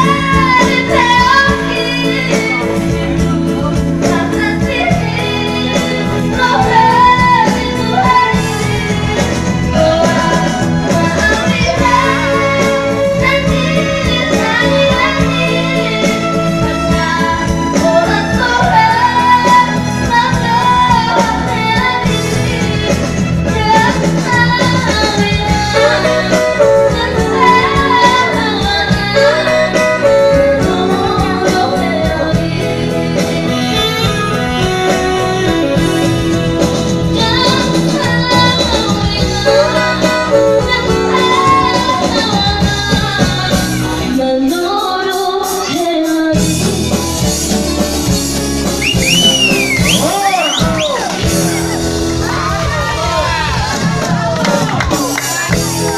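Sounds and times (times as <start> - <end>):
girl singing through microphone: 0.0 - 36.1, 37.1 - 47.0
amplified band accompaniment: 0.0 - 55.9.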